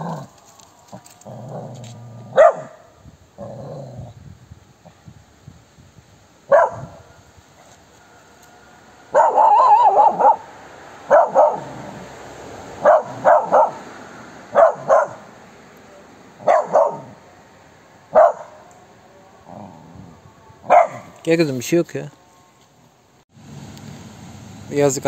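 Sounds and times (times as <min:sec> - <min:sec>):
small dog barking: 0:02.3 - 0:02.9, 0:06.5 - 0:07.0, 0:09.1 - 0:10.5, 0:11.1 - 0:12.0, 0:12.8 - 0:13.8, 0:14.5 - 0:15.3, 0:16.4 - 0:17.2, 0:18.1 - 0:18.7, 0:20.6 - 0:21.2.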